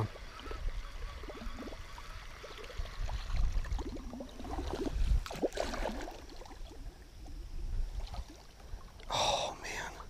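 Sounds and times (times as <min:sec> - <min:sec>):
wind rumble on microphone: 0:00.0 - 0:05.5, 0:06.5 - 0:08.9
water lapping around boat: 0:00.0 - 0:09.1
fish splash: 0:03.3 - 0:06.6.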